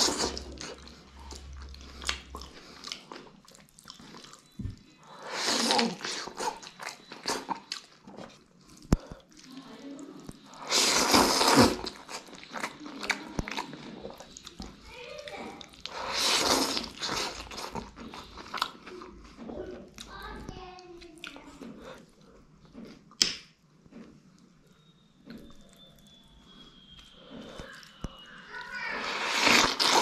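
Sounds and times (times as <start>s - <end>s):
person slurping noodles: 0.0s - 2.9s, 5.2s - 7.7s, 10.5s - 12.8s, 15.8s - 18.6s, 28.9s - 30.0s
wet chewing and lip-smacking: 0.0s - 20.2s, 21.0s - 30.0s.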